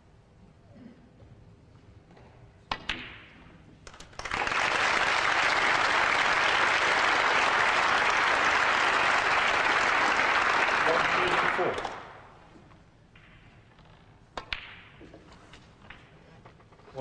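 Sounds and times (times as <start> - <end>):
light knocks of balls: 2.1 - 4.1, 12.7 - 16.6
crowd applause: 4.1 - 12.2
snooker balls clicking: 12.7 - 16.8.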